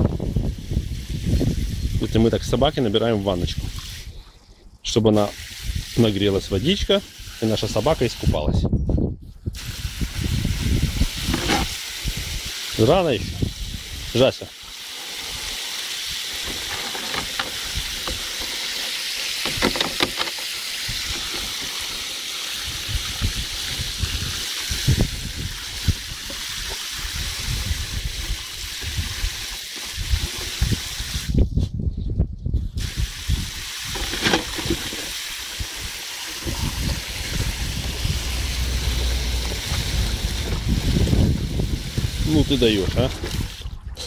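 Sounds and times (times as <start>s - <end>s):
hose spraying into water: 0.1s - 4.2s, 5.1s - 8.4s, 9.5s - 31.4s, 32.8s - 43.8s.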